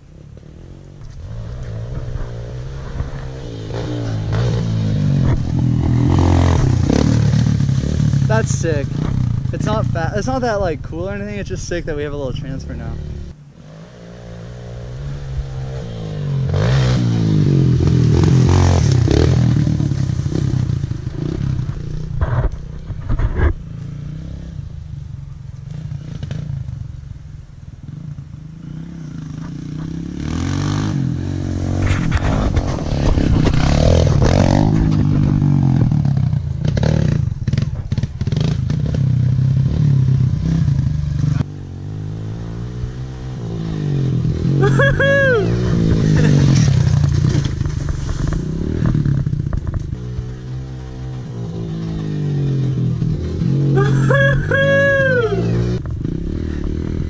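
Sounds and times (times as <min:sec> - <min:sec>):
dirt bike engine revving: 0:00.2 - 0:24.9, 0:27.9 - 0:57.0.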